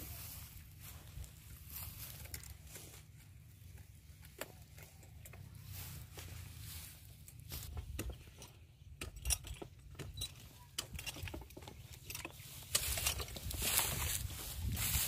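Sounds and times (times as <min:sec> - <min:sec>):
metal jangling of climbing gear: 0:07.8 - 0:13.7
wind rumble on microphone: 0:13.3 - 0:15.0.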